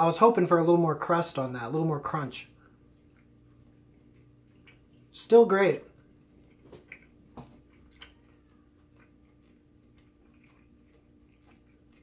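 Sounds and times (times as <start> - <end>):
faint room hum: 0.0 - 12.0.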